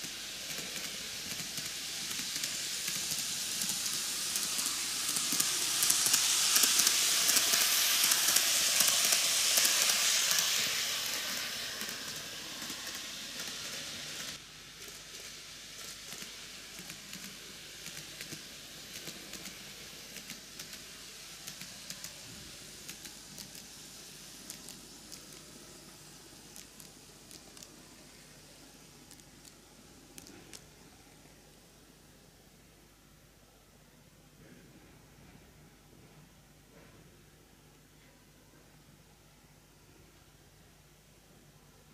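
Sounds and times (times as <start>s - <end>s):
model train whirring on track: 0.0s - 30.8s
faint clicking of train wheels: 0.0s - 31.4s.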